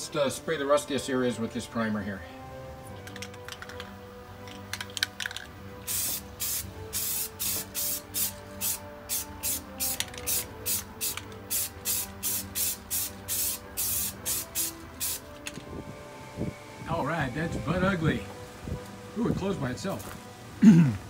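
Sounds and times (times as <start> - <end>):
aerosol can spraying bursts: 5.8 - 15.4.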